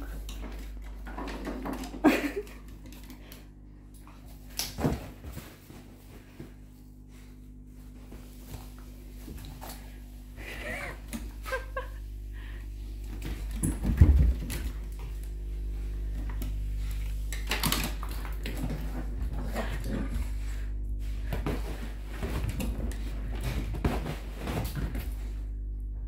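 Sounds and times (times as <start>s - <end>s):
dogs playing rough: 13.0s - 25.4s.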